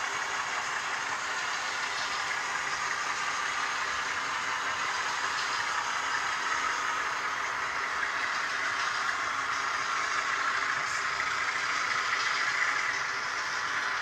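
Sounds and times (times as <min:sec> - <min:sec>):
model train wheels on rails: 0:00.0 - 0:14.0.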